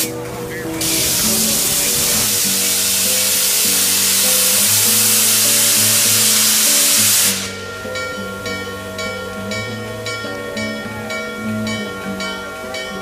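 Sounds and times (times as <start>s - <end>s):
steam locomotive venting steam: 0.0s - 8.1s
background music: 0.0s - 13.0s.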